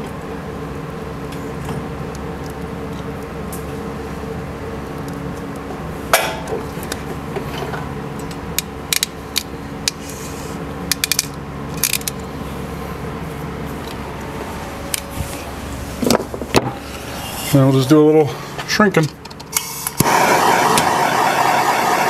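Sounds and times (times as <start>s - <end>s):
steady low hum: 0.0s - 22.0s
ratcheting crimper clicking: 10.9s - 12.3s.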